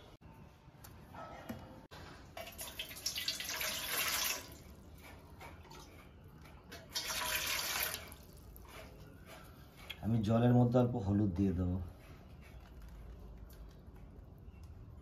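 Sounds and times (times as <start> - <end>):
water pouring into steel bowl: 2.4 - 4.7, 6.9 - 8.3.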